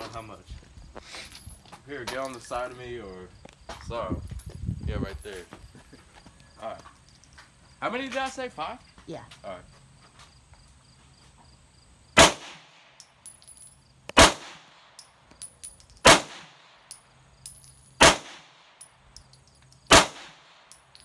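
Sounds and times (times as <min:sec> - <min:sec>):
pistol shots: 0:12.2 - 0:12.8, 0:14.2 - 0:14.8, 0:16.0 - 0:16.7, 0:18.0 - 0:18.6, 0:19.9 - 0:20.7.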